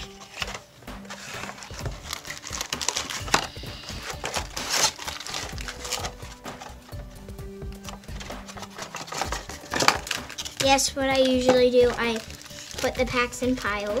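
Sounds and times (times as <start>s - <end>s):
foil packs crinkling: 0.0s - 14.0s.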